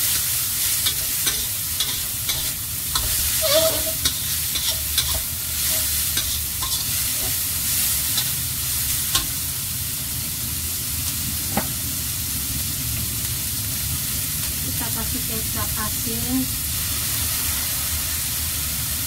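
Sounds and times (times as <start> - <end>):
vegetables sizzling in a wok: 0.0 - 19.0
metal spatula scraping wok: 0.1 - 9.4
spatula clinking against wok: 0.8 - 7.4.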